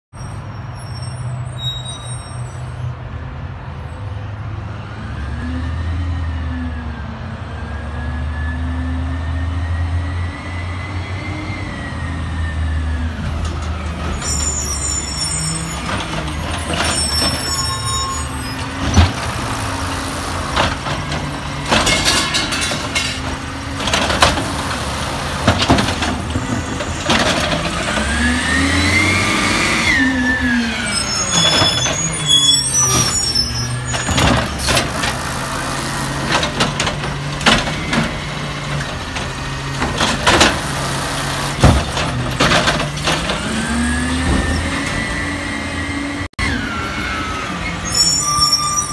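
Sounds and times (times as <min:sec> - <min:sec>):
garbage truck engine revving: 0:15.0 - 0:47.8.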